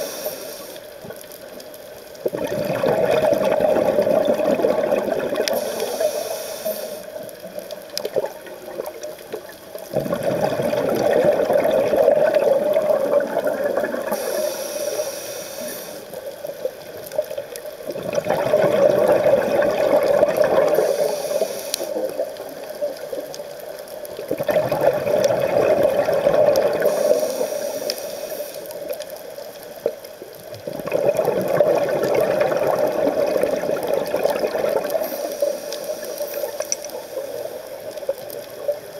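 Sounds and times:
diver breathing through regulator: 0.0s - 0.9s, 5.5s - 7.2s, 14.1s - 16.2s, 20.7s - 22.1s, 26.8s - 28.8s, 34.9s - 37.6s
exhale bubbles rushing: 2.2s - 5.8s, 9.9s - 14.3s, 17.9s - 21.1s, 24.3s - 27.2s, 30.6s - 35.1s.

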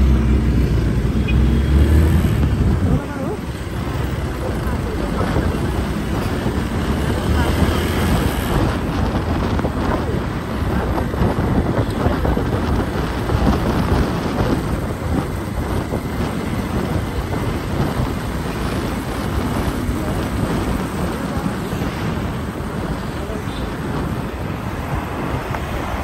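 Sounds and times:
traffic noise: 0.0s - 26.0s
wind buffeting microphone: 0.0s - 26.0s.

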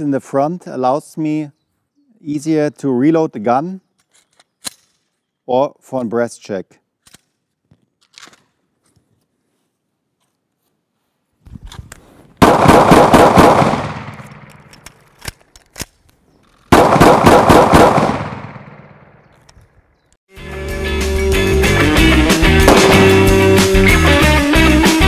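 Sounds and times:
pistol shots with echo: 12.4s - 14.7s, 16.7s - 19.2s, 22.7s - 23.4s.

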